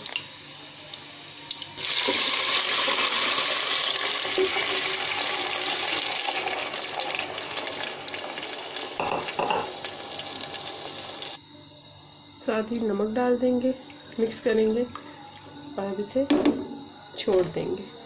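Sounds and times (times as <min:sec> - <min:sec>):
rice sizzling in hot oil: 0:00.0 - 0:11.4.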